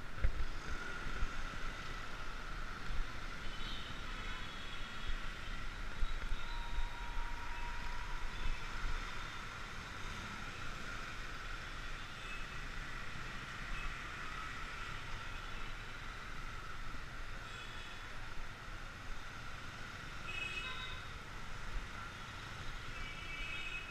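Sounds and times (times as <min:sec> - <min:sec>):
traffic engine and road noise: 0:00.0 - 0:23.9.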